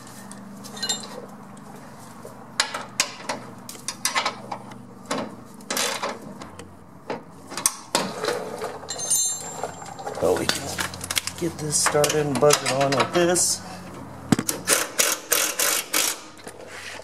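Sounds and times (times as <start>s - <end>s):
metal tools clinking on bolts: 0.6s - 1.2s, 8.6s - 13.3s.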